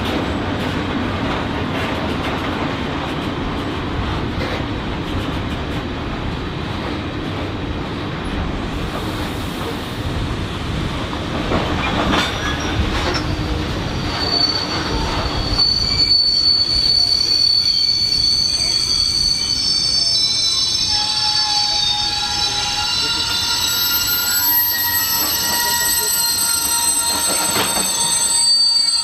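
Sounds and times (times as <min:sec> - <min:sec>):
railway wagons rumbling: 0:00.0 - 0:29.0
train wheels squealing: 0:11.8 - 0:29.0.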